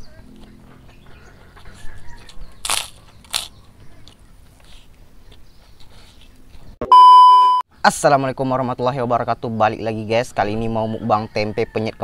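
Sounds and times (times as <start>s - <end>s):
chewing noodles: 0.3s - 6.4s.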